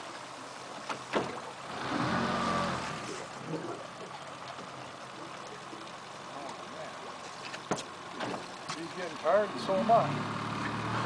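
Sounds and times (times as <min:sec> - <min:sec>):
boat motor running: 0:00.0 - 0:11.0
river water washing: 0:00.0 - 0:11.0.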